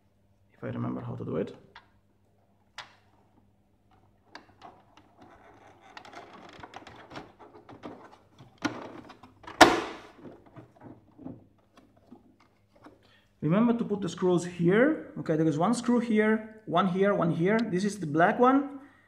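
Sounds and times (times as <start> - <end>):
plastic parts scraping and clicking: 2.8 - 13.1
loud clunk: 9.5 - 10.3.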